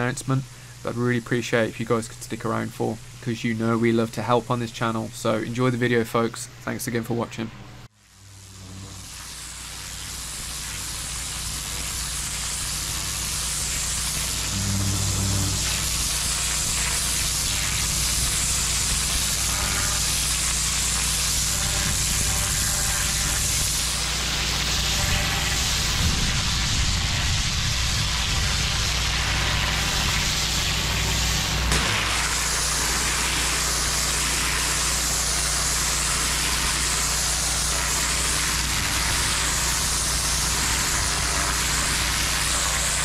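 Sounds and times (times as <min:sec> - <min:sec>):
pressure washer jet hissing: 0:07.9 - 0:43.0
engine hum: 0:14.3 - 0:16.1.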